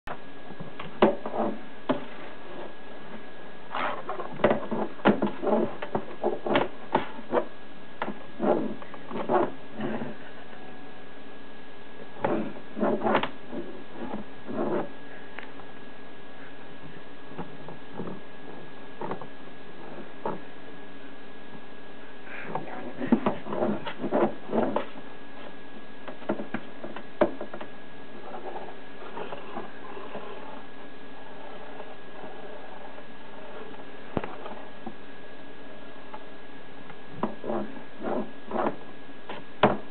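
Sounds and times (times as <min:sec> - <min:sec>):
stick scraping cardboard box: 0:00.9 - 0:02.8, 0:03.7 - 0:10.2, 0:12.2 - 0:15.0, 0:23.0 - 0:27.6, 0:37.2 - 0:39.4
cat scratching cardboard box: 0:12.2 - 0:15.0.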